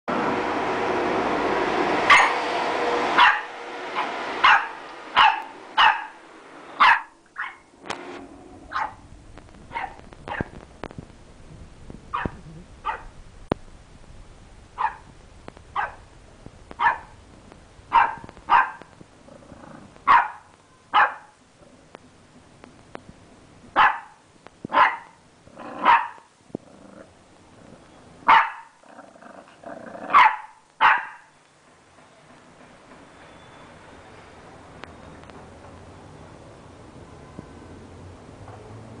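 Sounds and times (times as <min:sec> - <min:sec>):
puppy barking: 0:02.1 - 0:02.4, 0:03.2 - 0:06.2, 0:06.8 - 0:07.7, 0:08.7 - 0:09.0, 0:09.7 - 0:10.6, 0:12.1 - 0:13.1, 0:14.8 - 0:15.1, 0:15.8 - 0:16.0, 0:16.8 - 0:17.2, 0:17.9 - 0:18.9, 0:20.0 - 0:21.4, 0:23.8 - 0:25.2, 0:25.8 - 0:26.3, 0:28.2 - 0:28.8, 0:30.1 - 0:31.3.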